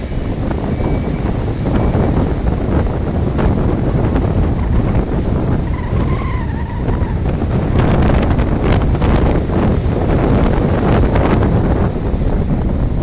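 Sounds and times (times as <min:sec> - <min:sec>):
wavering whine-like tone: 0:00.0 - 0:07.1
storm surf breaking: 0:00.0 - 0:13.0
wind buffeting microphone: 0:00.0 - 0:13.0.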